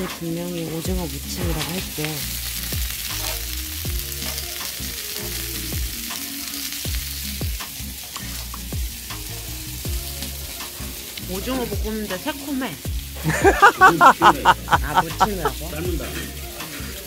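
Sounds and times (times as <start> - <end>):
meat sizzling on a griddle: 0.0 - 17.0
background music with deep bass: 0.8 - 17.0.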